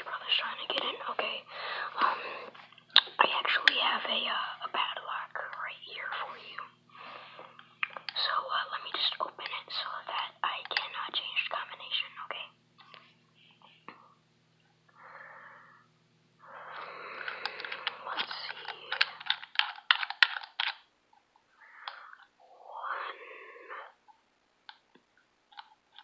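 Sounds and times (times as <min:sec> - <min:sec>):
soft breathy hiss: 0:00.0 - 0:14.2, 0:14.9 - 0:19.3, 0:21.5 - 0:24.2.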